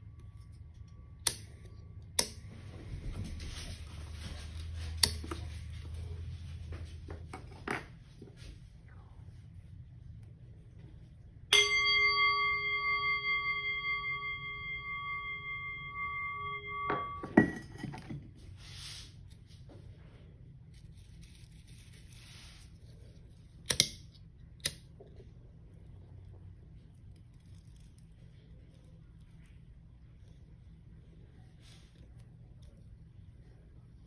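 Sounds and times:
bell ringing: 11.5 - 17.9
knock damping bell: 11.5 - 18.0.

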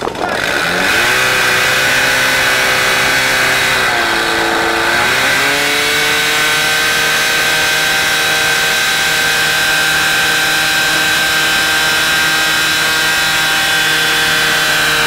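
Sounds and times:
pump engine running at high revs: 0.0 - 15.0.

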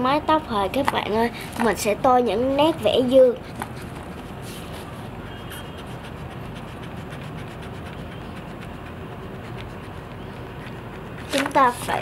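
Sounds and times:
pencil scratching on paper: 2.8 - 12.0.

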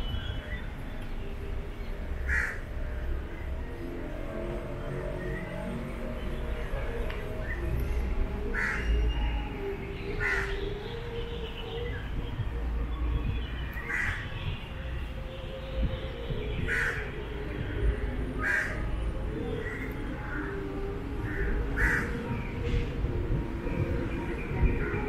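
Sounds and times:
crow cawing: 2.3 - 2.6, 8.6 - 8.9, 18.4 - 18.8, 21.3 - 22.1.

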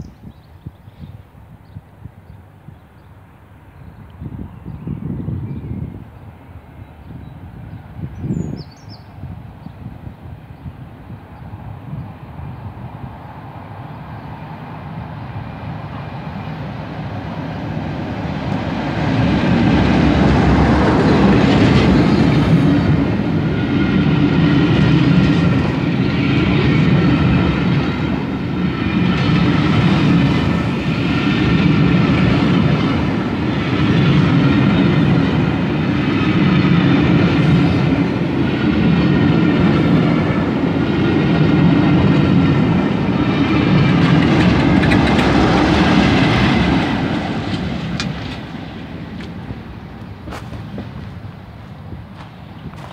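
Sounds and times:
diesel locomotive approaching: 0.0 - 52.9
wheels clattering over rail joints: 43.4 - 52.9.

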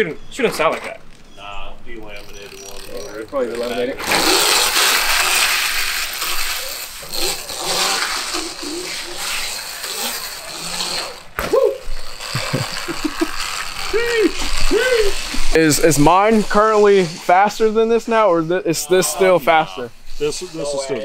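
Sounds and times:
electric dirt bike motor whirring: 0.6 - 19.4
short rising and falling sounds: 2.2 - 18.3.

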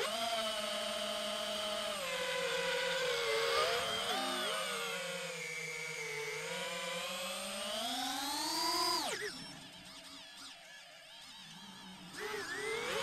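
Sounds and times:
quadcopter propellers whining: 0.0 - 13.0.

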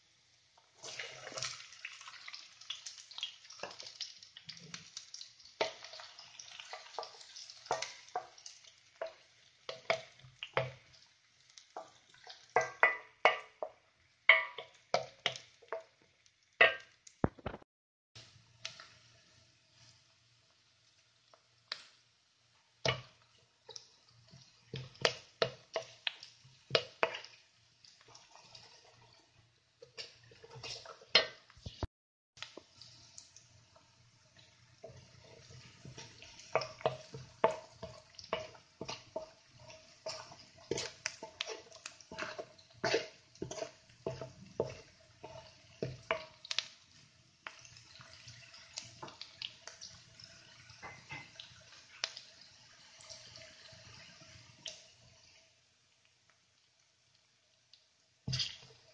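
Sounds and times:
onion sizzling in oil: 0.0 - 17.6, 18.2 - 58.9
wooden spoon clicking against pan: 45.8 - 46.8.

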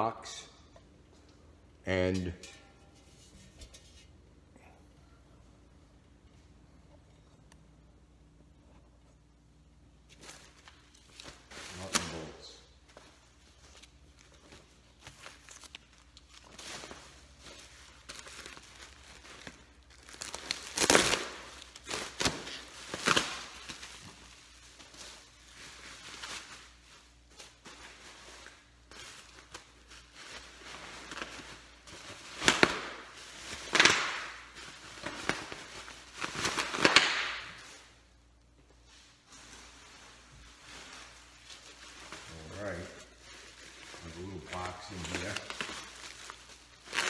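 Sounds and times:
packing material crumpling: 13.6 - 37.8, 39.4 - 47.0.

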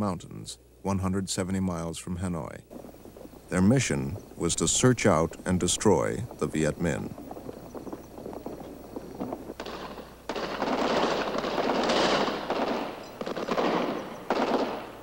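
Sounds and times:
battle gunfire: 9.6 - 15.0.

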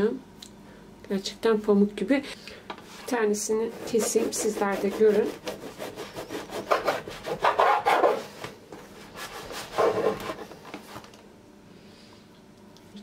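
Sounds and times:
knife sawing through bread crust: 3.6 - 8.3, 9.1 - 10.5.

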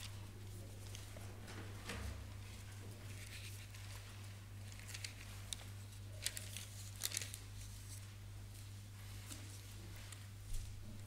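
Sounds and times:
thin pages turning: 0.0 - 1.2, 2.3 - 8.0
steady low hum: 0.0 - 11.0.

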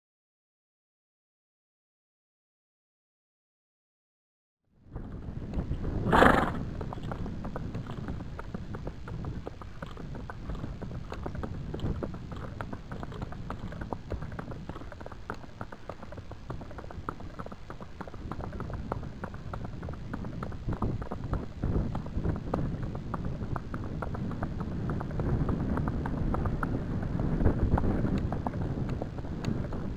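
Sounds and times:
hoofbeats on dirt: 5.0 - 29.9
horse snorting: 5.7 - 7.0.

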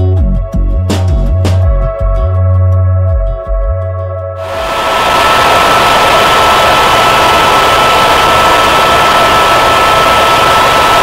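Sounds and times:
helicopter engine and rotor noise: 4.4 - 11.0
high whine: 4.4 - 11.0.

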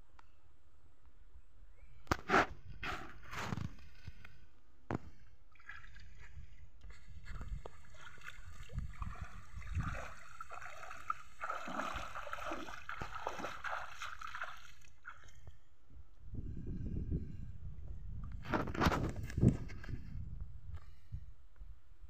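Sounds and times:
legs wading through water: 5.5 - 15.6.

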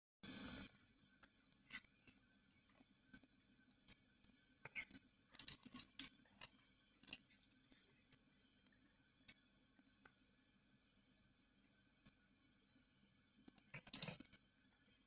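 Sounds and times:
cat chewing food: 0.4 - 9.9, 13.4 - 14.5.

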